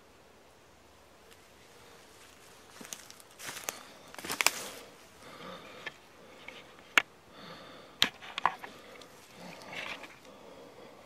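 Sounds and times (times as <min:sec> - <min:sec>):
footsteps on leaf litter: 0:02.0 - 0:05.0.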